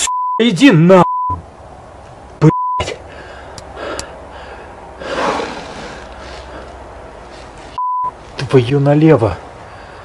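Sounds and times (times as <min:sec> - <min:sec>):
censor bleep tone: 0:00.0 - 0:00.4, 0:01.0 - 0:01.4, 0:02.5 - 0:02.8, 0:07.8 - 0:08.2
man gasping breath: 0:03.0 - 0:06.8, 0:09.7 - 0:10.0.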